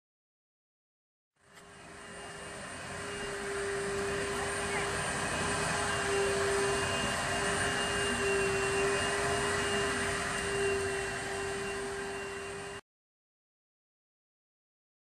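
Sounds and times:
mechanical drone: 0:01.4 - 0:12.8.

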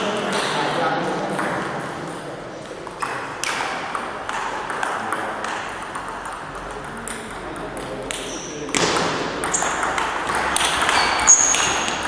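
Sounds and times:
table tennis ball clicks: 0:02.9 - 0:12.0.

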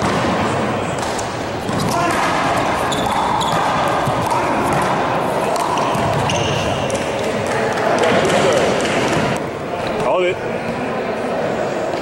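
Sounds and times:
handball smacking wall and floor: 0:00.0 - 0:09.4
sneakers squeaking on floor: 0:00.4 - 0:07.4.

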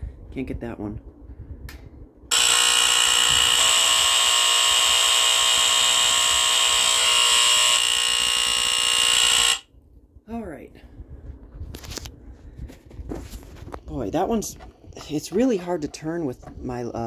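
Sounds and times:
alarm horn buzzing: 0:02.3 - 0:09.7.

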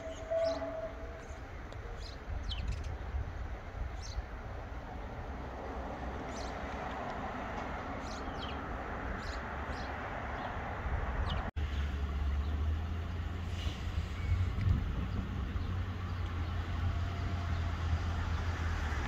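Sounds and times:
high bird chirps: 0:00.0 - 0:03.0
outdoor background noise: 0:00.0 - 0:19.0.

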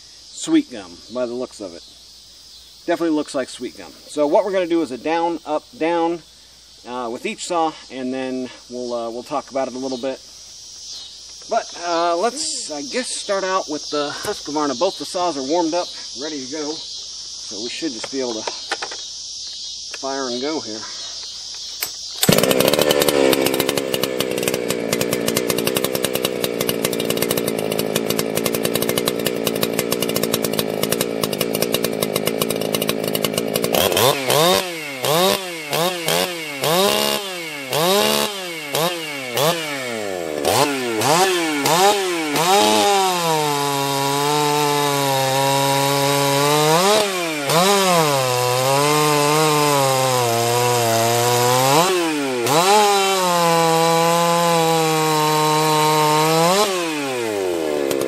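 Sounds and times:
chainsaw revving and cutting log: 0:22.2 - 0:58.0.

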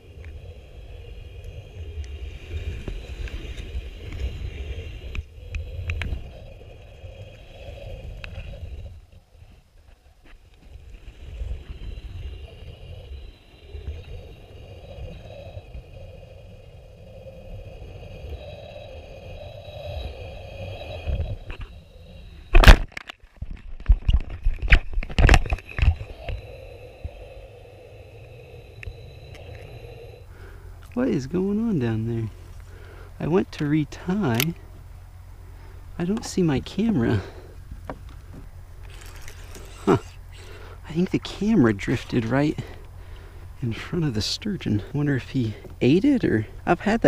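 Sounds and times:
underwater rumble of water: 0:00.0 - 0:33.5
faint ticks and scrapes: 0:00.0 - 0:34.9, 0:35.5 - 0:47.0.

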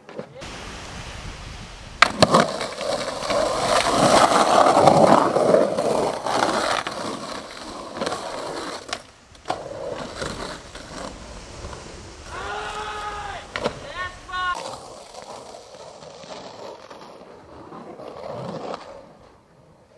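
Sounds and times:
skateboard clack: 0:00.0 - 0:00.5, 0:01.9 - 0:19.9
skateboard wheels rolling on concrete: 0:00.0 - 0:19.9.

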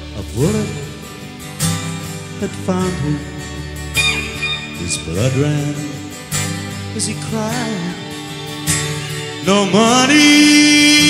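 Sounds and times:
rock band playing live: 0:00.1 - 0:07.0
lead electric guitar bending notes: 0:03.4 - 0:07.0.

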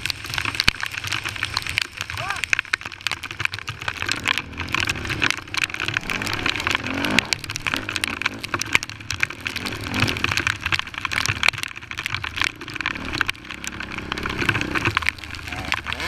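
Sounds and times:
wind and rain crackling on microphone: 0:00.0 - 0:16.0
quad engine revving: 0:04.4 - 0:08.6.

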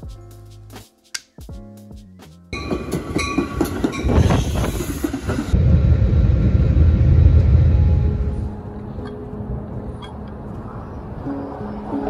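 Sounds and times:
train interior rumble: 0:02.5 - 0:12.0
train wheels clattering: 0:02.6 - 0:05.6.

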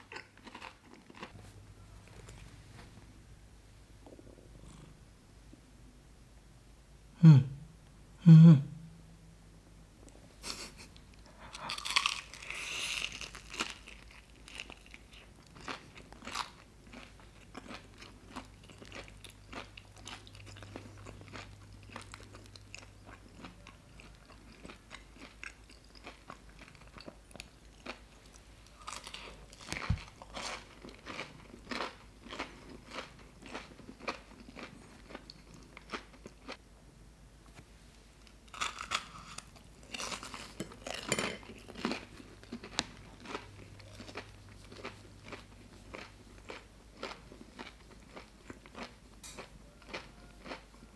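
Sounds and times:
crunching and chewing crispy food: 0:00.0 - 0:01.4, 0:11.2 - 0:36.6, 0:38.2 - 0:50.9.

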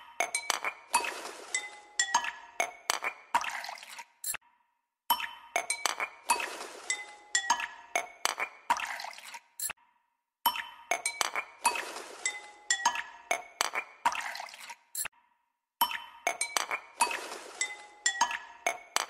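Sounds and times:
music with glassy clinks: 0:06.8 - 0:08.3, 0:12.2 - 0:13.6, 0:15.8 - 0:19.0.

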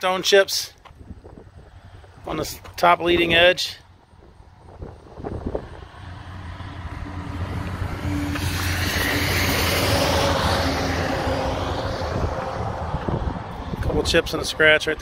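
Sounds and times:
vehicle passing by: 0:04.6 - 0:14.6.

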